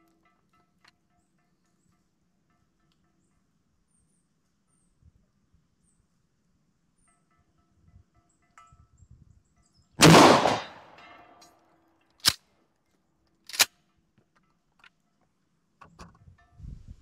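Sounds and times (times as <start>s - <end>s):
shotgun blast: 10.0s - 11.0s
shotgun pump clacking: 13.5s - 13.7s.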